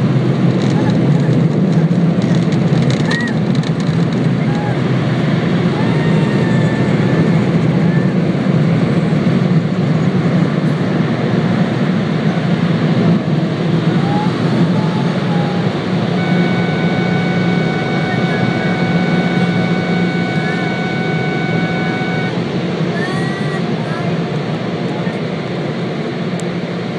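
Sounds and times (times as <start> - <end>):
thin steady whine: 11.8 - 25.1.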